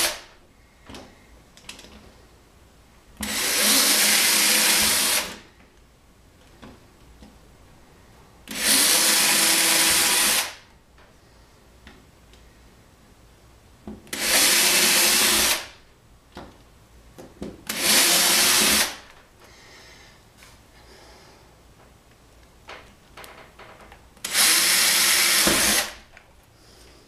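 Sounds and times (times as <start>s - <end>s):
cordless drill boring through plywood: 3.2s - 5.4s, 8.5s - 10.6s, 14.1s - 15.7s, 17.7s - 19.0s, 24.2s - 26.0s.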